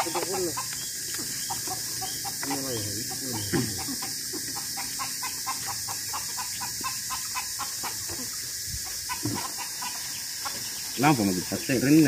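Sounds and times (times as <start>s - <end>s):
animal chirping rapidly: 0.0s - 8.0s
steady high hiss: 0.0s - 12.0s.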